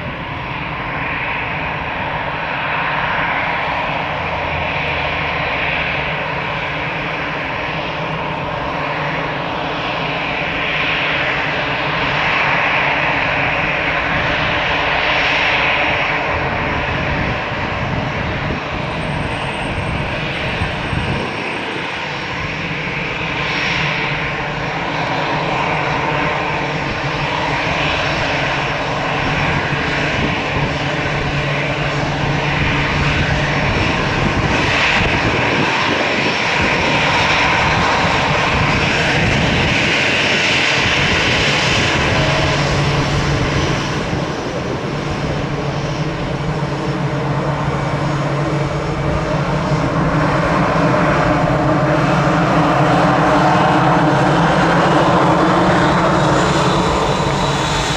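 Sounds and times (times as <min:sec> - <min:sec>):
jet engines whining and rumbling: 0:00.0 - 0:57.9.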